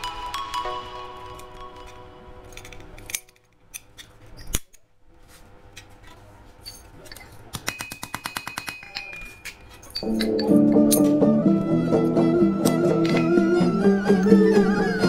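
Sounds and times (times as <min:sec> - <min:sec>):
metal scraping and clinks: 0:01.3 - 0:04.8, 0:06.6 - 0:07.5, 0:08.8 - 0:11.2.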